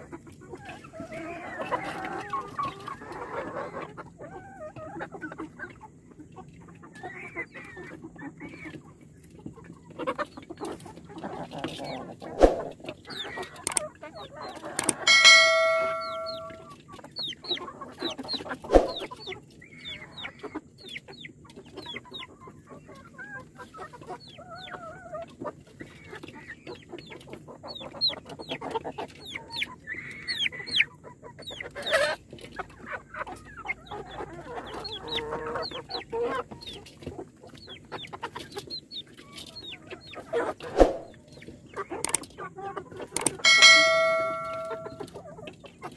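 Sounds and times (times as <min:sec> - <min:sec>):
chickens clucking: 0:00.0 - 0:45.9
loud ringing tone: 0:15.1 - 0:16.6, 0:43.5 - 0:45.1.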